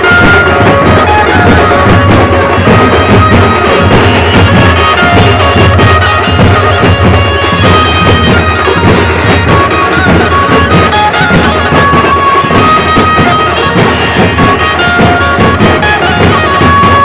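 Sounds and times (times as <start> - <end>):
folk dance band playing: 0.0 - 17.0
lead melody with long held notes: 0.0 - 17.0
steady dense drumming: 0.0 - 17.0.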